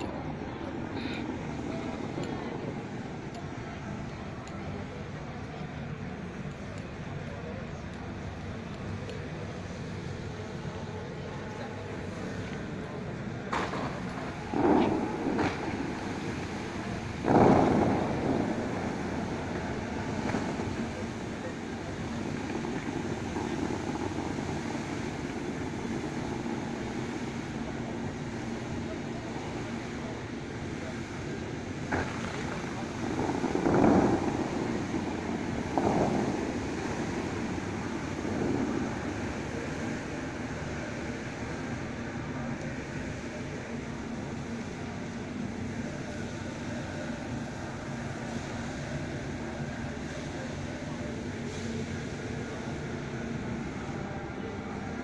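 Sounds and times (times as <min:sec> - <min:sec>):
fountain jets whooshing: 0:00.0 - 0:55.0
hiss of falling water: 0:13.5 - 0:55.0.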